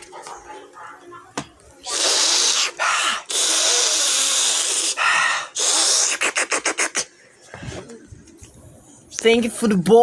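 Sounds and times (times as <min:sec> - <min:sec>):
blowing into microphone: 0:01.8 - 0:08.7.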